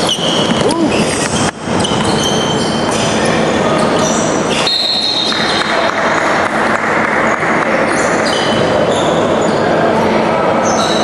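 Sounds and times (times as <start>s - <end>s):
sneakers squeaking on court: 0.0s - 5.6s, 7.8s - 9.8s
noisy gym background: 0.0s - 11.0s.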